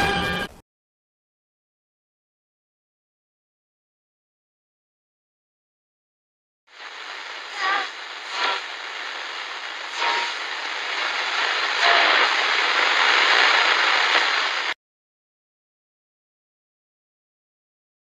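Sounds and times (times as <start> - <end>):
harsh static hiss: 6.7 - 14.8.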